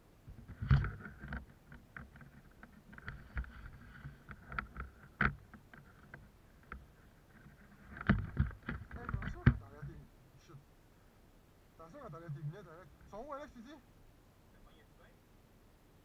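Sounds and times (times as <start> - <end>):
gear clicks and knocks: 0.3 - 10.0.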